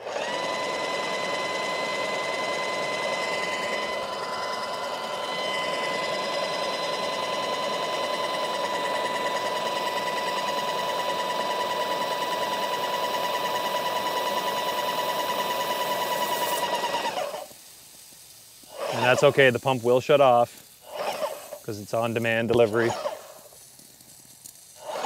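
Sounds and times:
paint sprayer pump whining: 0.0s - 25.0s.

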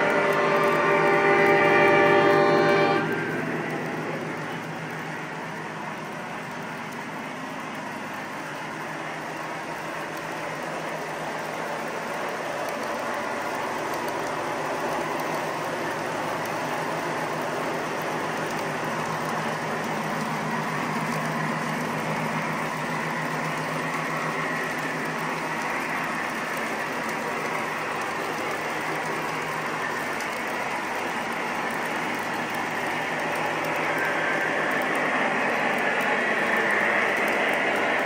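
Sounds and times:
model train wheels clattering: 3.0s - 38.0s.

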